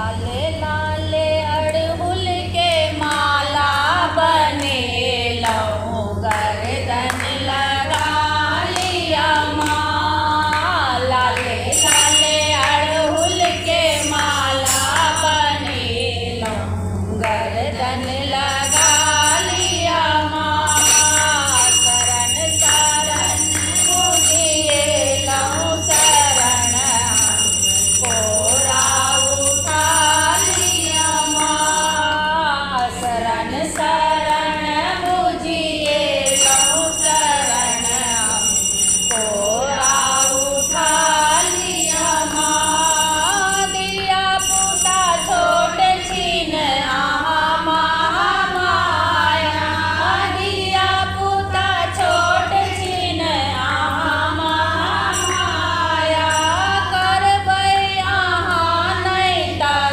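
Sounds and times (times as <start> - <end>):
steady low hum: 0.0 - 59.9
women singing in unison: 0.0 - 59.9
hand-clapping to the beat: 2.6 - 19.5, 20.7 - 31.8, 32.7 - 46.2
high thin ringing tone: 10.4 - 33.3, 34.0 - 59.8.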